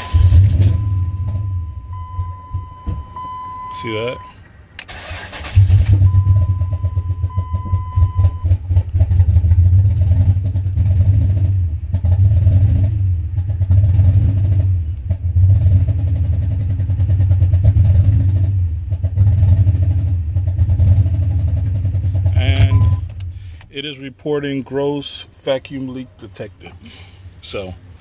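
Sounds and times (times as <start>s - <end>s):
engine idling unevenly: 0.0s - 9.8s, 21.6s - 28.0s
electronic chime tone: 6.1s - 8.4s, 22.5s - 23.1s.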